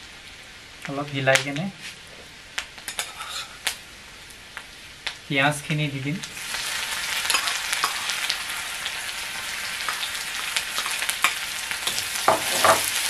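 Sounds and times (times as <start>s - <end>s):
onion sizzling in hot oil: 0.0s - 13.0s
spatula scraping pan: 11.9s - 13.0s.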